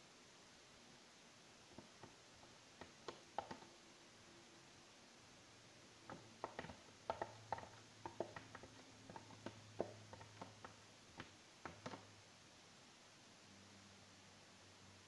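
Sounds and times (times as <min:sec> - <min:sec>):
plastic container clicks and taps: 0:02.8 - 0:03.6, 0:06.1 - 0:12.0.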